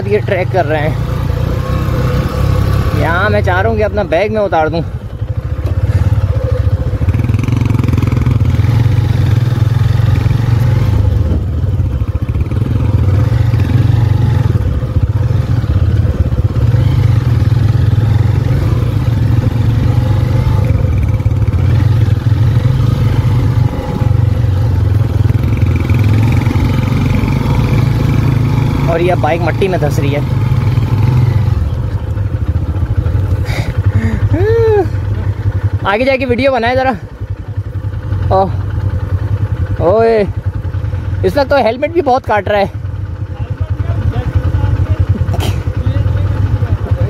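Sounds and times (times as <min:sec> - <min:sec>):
motorcycle engine running: 0:00.0 - 0:47.0.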